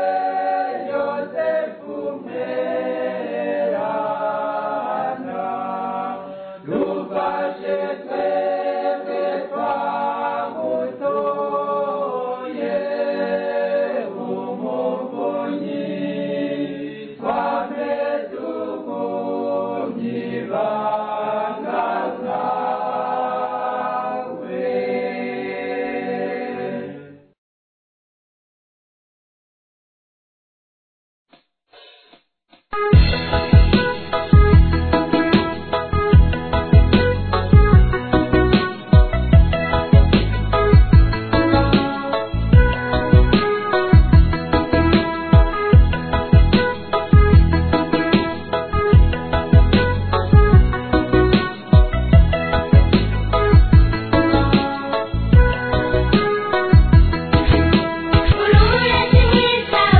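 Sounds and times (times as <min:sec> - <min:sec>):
choir singing a hymn: 0:00.0 - 0:27.2, 0:57.8 - 0:59.9.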